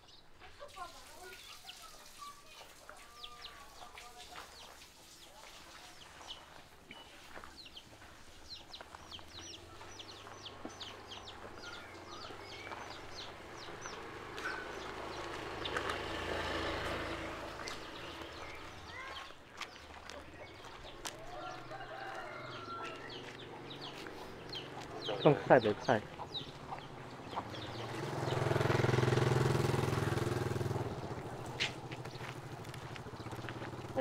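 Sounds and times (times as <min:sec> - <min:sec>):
chickens clucking: 0:17.4 - 0:28.3.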